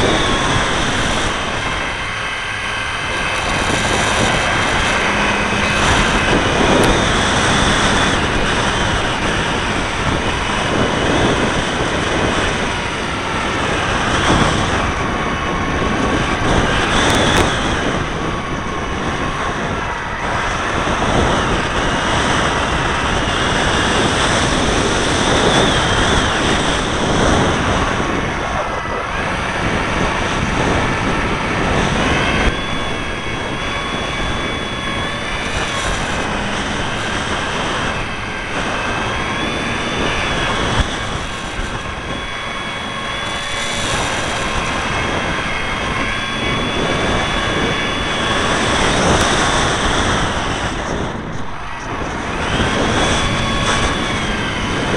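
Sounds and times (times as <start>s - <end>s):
propeller motor whining: 0.0s - 54.9s
wind rushing past: 0.0s - 54.9s.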